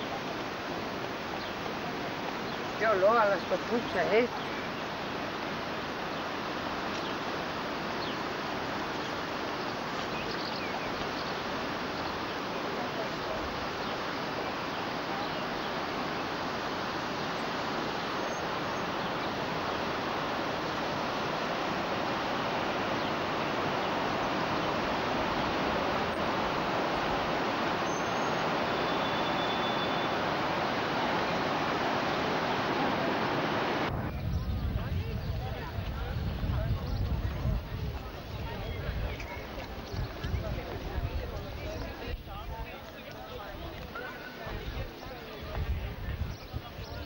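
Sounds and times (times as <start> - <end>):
rushing river water: 0.0 - 34.0.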